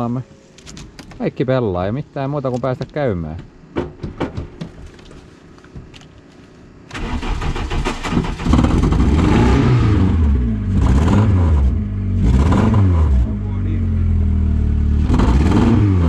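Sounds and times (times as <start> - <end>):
car engine revving: 6.9 - 16.0.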